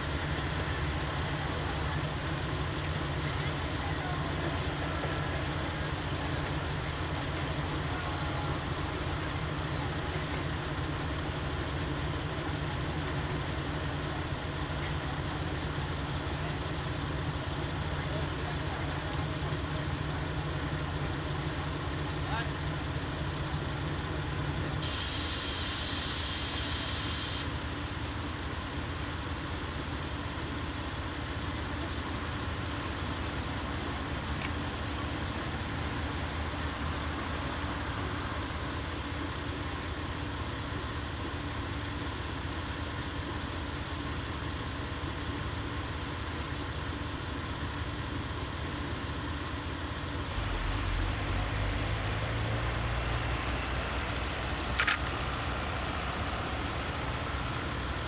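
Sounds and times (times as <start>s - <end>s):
deep engine rumble: 0.0s - 58.0s
diesel engine idling: 0.0s - 58.0s
air hiss: 24.8s - 27.6s.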